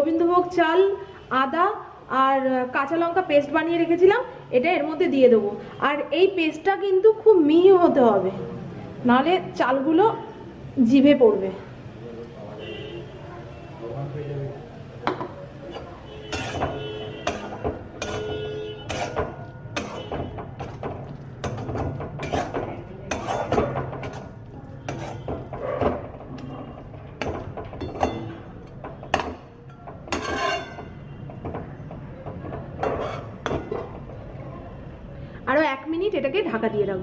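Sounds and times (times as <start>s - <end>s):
spatula scraping a steel wok: 15.6s - 26.0s, 30.0s - 31.2s, 32.8s - 33.6s.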